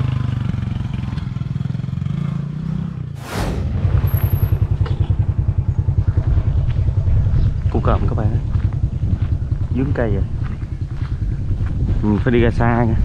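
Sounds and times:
brief rushing noise: 0:03.2 - 0:05.3.

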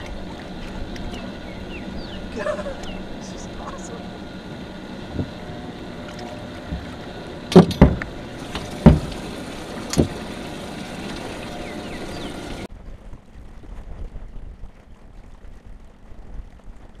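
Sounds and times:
water noise: 0:00.0 - 0:17.0
wind: 0:00.0 - 0:17.0
loud thumps on aluminum boat: 0:07.5 - 0:09.3.

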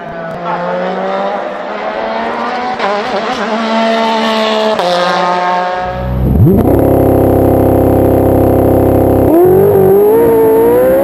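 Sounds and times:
race car engine accelerating: 0:00.2 - 0:11.0
louder engine sweeping up: 0:05.8 - 0:11.0.

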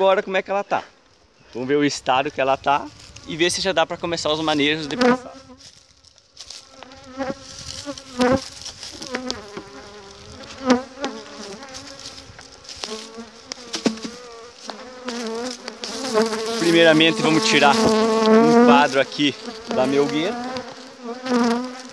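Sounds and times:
bees buzzing: 0:04.4 - 0:21.9
hive lid knocks: 0:13.6 - 0:16.5.

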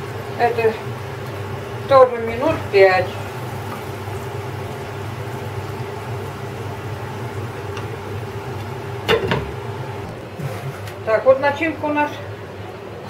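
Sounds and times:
food simmering in a frying pan: 0:00.0 - 0:10.2.

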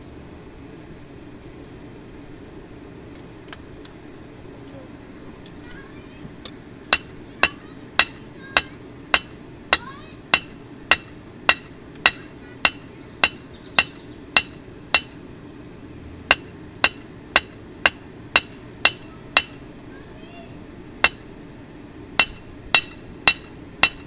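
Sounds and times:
hammer ringing on anvil: 0:06.9 - 0:15.2, 0:16.3 - 0:19.6, 0:21.0 - 0:21.2, 0:22.2 - 0:24.0.

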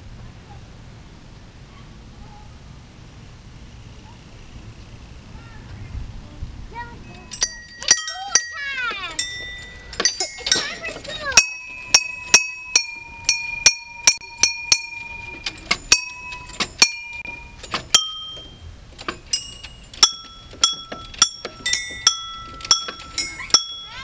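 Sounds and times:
metal chimes struck by hand: 0:07.1 - 0:24.0.

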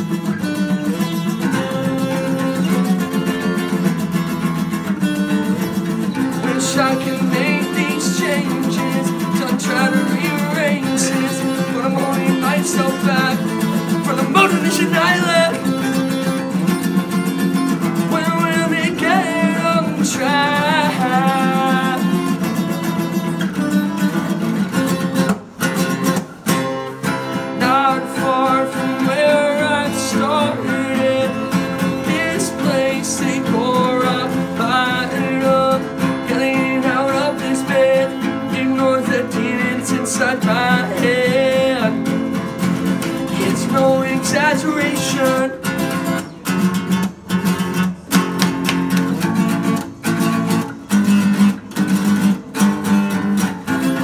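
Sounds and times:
acoustic guitars strummed: 0:00.0 - 0:54.0
man singing: 0:05.2 - 0:22.7, 0:27.5 - 0:46.2.

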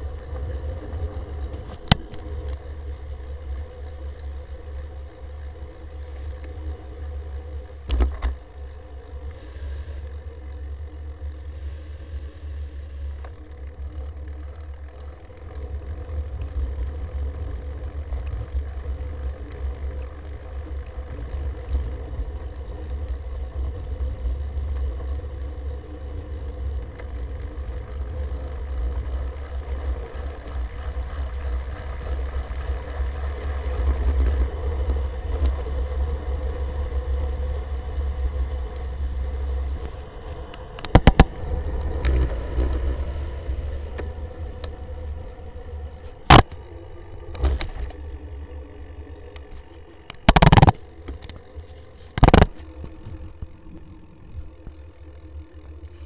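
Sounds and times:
bicycle road rumble: 0:00.0 - 0:56.0.

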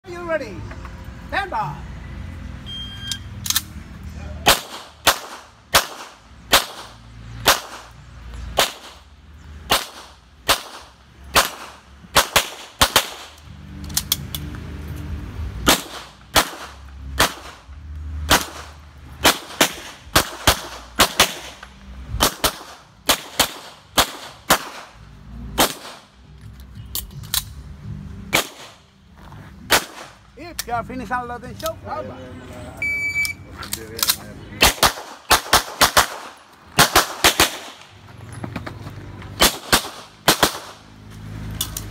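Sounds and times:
shot timer beep: 0:02.7 - 0:03.3, 0:32.8 - 0:33.4
gunshots in quick pairs: 0:04.4 - 0:07.9, 0:09.7 - 0:13.4, 0:15.6 - 0:17.6, 0:18.3 - 0:21.6, 0:22.2 - 0:24.9, 0:25.6 - 0:26.1, 0:28.3 - 0:28.8, 0:29.7 - 0:30.2, 0:34.6 - 0:37.8, 0:39.4 - 0:40.8.

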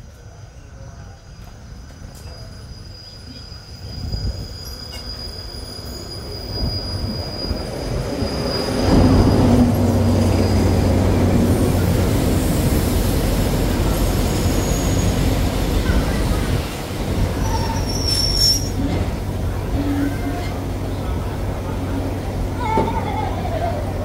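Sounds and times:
train carriages rolling past: 0:00.0 - 0:24.0
diesel locomotive engine drone: 0:06.1 - 0:24.0.

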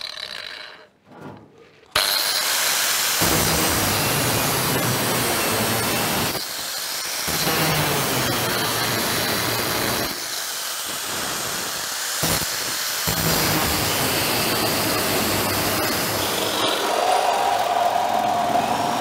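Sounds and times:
angle grinder cutting steel: 0:00.0 - 0:01.0, 0:01.9 - 0:19.0
reciprocating saw motor whine: 0:11.0 - 0:19.0.

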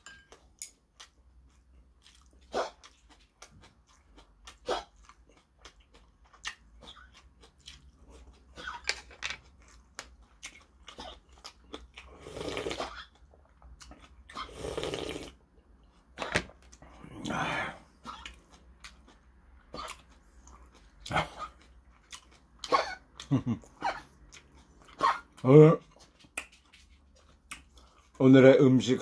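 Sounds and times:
chewing with wet mouth clicks: 0:00.3 - 0:08.8, 0:09.4 - 0:12.1, 0:12.8 - 0:14.4, 0:18.0 - 0:23.4, 0:24.0 - 0:28.2
slurping broth: 0:12.1 - 0:13.0, 0:14.3 - 0:15.4.

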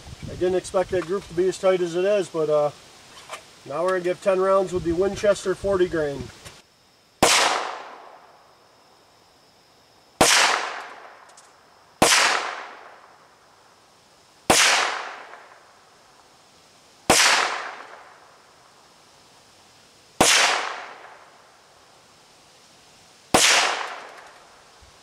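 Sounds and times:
pistol shots with echo: 0:07.2 - 0:08.0, 0:10.2 - 0:11.1, 0:12.0 - 0:12.9, 0:14.5 - 0:15.5, 0:17.1 - 0:18.0, 0:20.2 - 0:21.2, 0:23.3 - 0:24.3.

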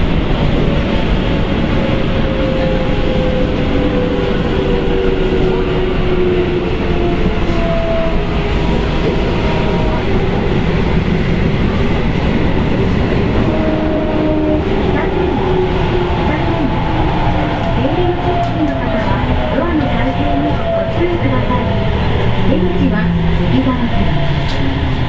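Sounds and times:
rumble of train wheels on rail: 0:00.0 - 0:25.0.

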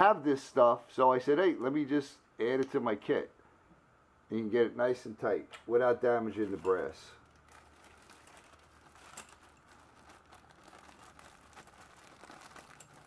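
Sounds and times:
plastic bag crinkling: 0:06.3 - 0:13.0.

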